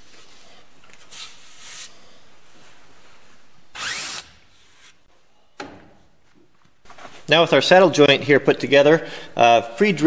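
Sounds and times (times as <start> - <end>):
power drill spinning up: 3.8 - 4.3.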